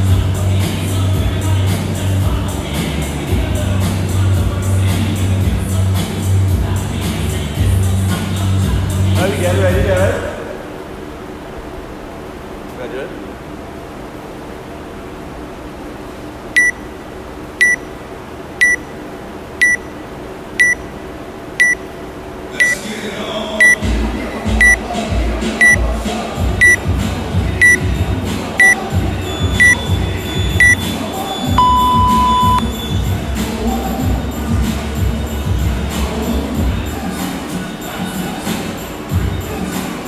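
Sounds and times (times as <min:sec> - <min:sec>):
music with a steady beat: 0:00.0 - 0:09.2, 0:23.6 - 0:40.0
countdown timer beeping: 0:16.6 - 0:16.8, 0:17.6 - 0:17.8, 0:18.6 - 0:18.9, 0:19.6 - 0:19.9, 0:20.6 - 0:20.8, 0:21.6 - 0:21.8, 0:24.6 - 0:24.8, 0:26.6 - 0:26.8, 0:27.5 - 0:27.8, 0:28.6 - 0:28.8, 0:29.5 - 0:30.9, 0:31.6 - 0:32.6
long low tone: 0:31.6 - 0:32.6.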